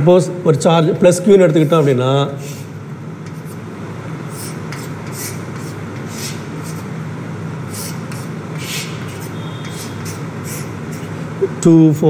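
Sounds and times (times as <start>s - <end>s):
chalk scratching on blackboard: 1.6s - 3.6s, 4.3s - 6.9s, 7.6s - 11.2s.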